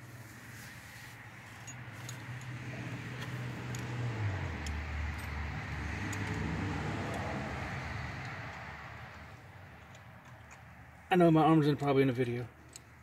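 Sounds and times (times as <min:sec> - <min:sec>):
vehicle passing by: 0:00.2 - 0:10.2.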